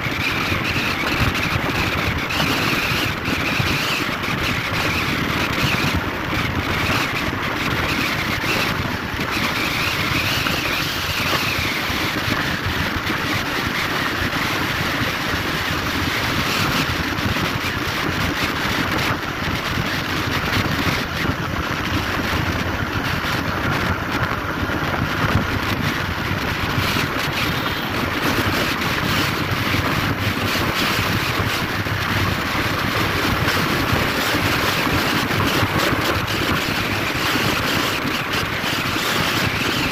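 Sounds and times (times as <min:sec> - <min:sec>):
wind and tyre noise on highway: 0:00.0 - 0:39.9.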